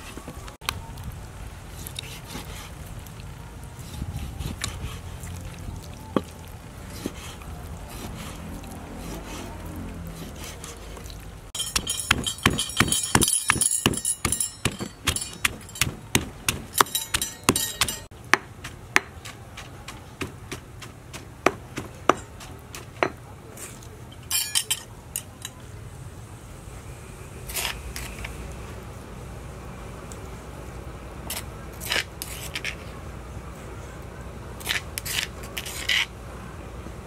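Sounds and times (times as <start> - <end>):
stone pestle pounding in mortar: 11.6 - 23.2.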